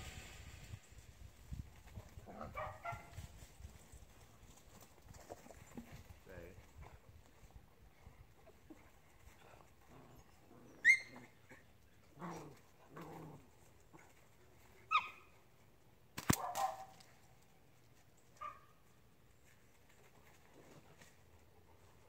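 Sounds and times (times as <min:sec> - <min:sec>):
dogs yipping and whining: 0:10.0 - 0:11.7, 0:14.9 - 0:15.3
sharp snap: 0:16.2 - 0:16.7.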